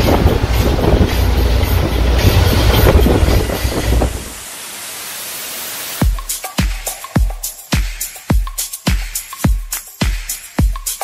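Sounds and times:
wind buffeting microphone: 0.0 - 4.5
boat engine rumble: 0.0 - 4.6
churning wake: 0.0 - 6.1.

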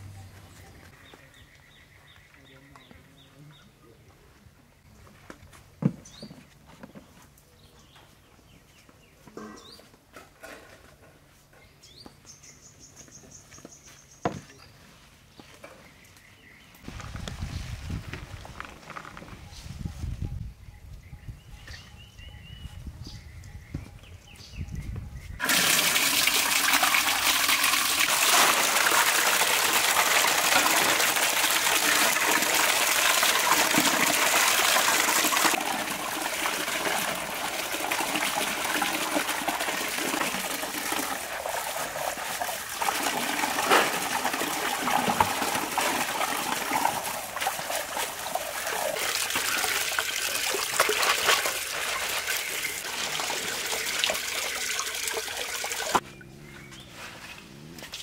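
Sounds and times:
uneven splashing: 25.4 - 56.0
water pouring into metal basin: 25.4 - 56.0.

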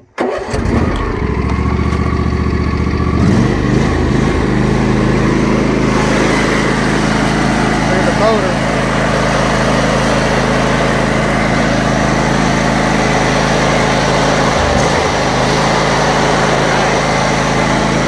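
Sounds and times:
riding mower engine running: 0.0 - 18.0.

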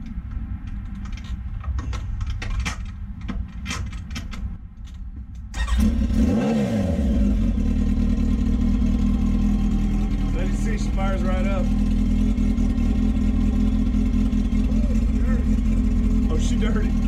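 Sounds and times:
motorcycle engine starting and idling: 0.7 - 17.0.

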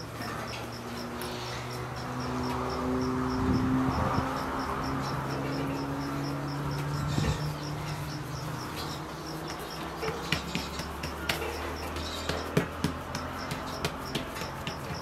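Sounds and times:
insect chirping: 0.0 - 10.0
hands patting dough on metal: 8.3 - 15.0.

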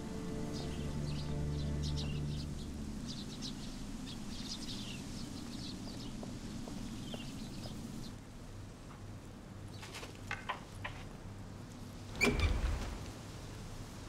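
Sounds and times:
held low music chord: 0.0 - 5.8
small birds chirping: 0.0 - 11.2.

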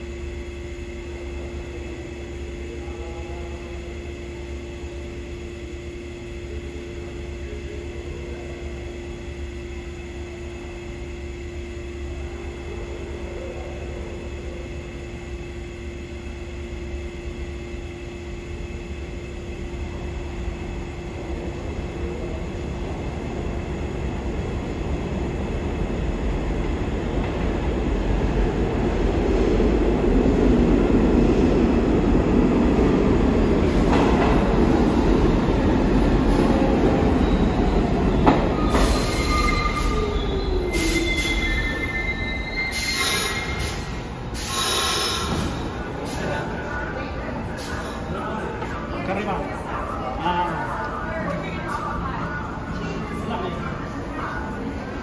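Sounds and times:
train wheels rumbling on rails: 19.8 - 46.5
brake and wheel squeals: 38.5 - 45.3.

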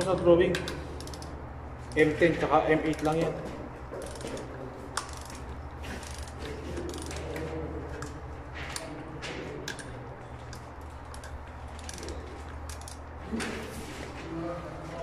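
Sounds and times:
ratchet wrench clicking: 0.0 - 2.2, 2.8 - 3.3, 4.0 - 7.3, 9.7 - 13.1
steady low hum: 0.0 - 15.0.

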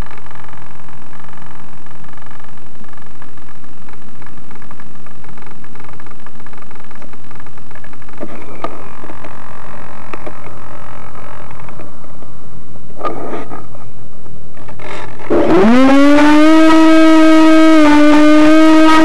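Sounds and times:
model aircraft motors whining: 14.7 - 19.0.

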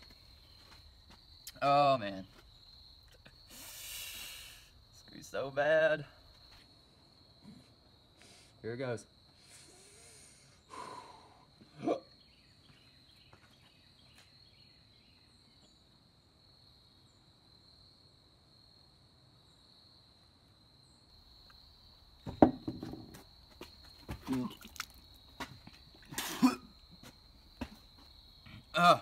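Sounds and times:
insect trill: 0.0 - 29.0
person drinking water: 24.2 - 25.0, 26.0 - 26.6
person sighing: 28.7 - 29.0.

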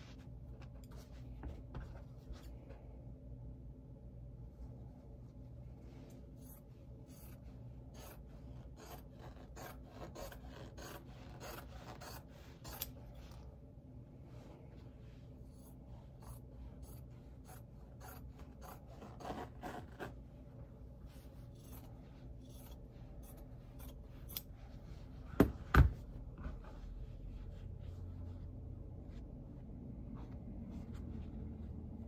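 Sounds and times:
scissors snipping fabric: 6.4 - 13.1, 16.2 - 20.2, 21.5 - 24.6
fabric rustling: 18.4 - 32.0.

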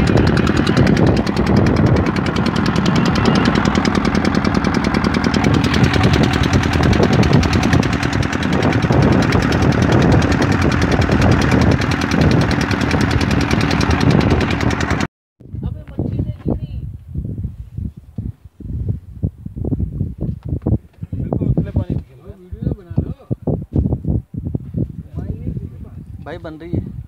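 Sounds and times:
boat engine chugging: 0.0 - 15.1.

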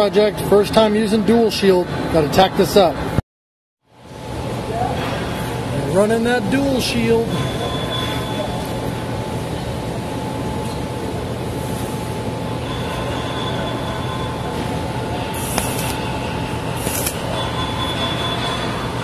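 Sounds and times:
thin steady whine: 3.9 - 19.0
welding arc crackling: 15.3 - 17.4.

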